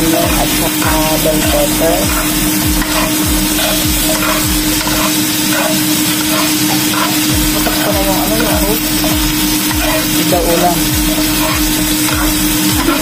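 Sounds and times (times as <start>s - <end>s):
plastic spatula scraping a pan: 0.0s - 13.0s
steady hum: 0.0s - 13.0s
vegetables sizzling in a wok: 0.0s - 13.0s.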